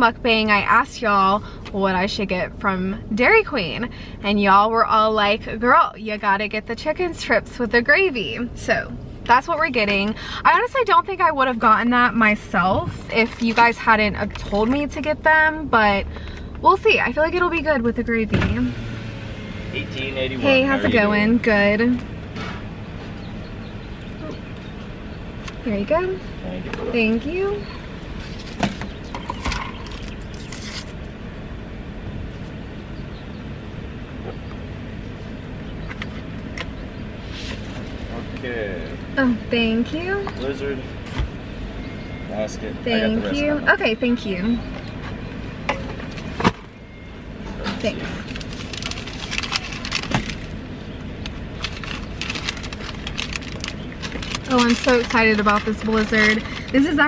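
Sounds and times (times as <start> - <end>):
car engine idling: 0.0 - 57.0
drink cup rustling and scraping: 12.9 - 15.0, 28.2 - 31.1, 37.2 - 38.0, 47.6 - 50.6, 51.6 - 57.0.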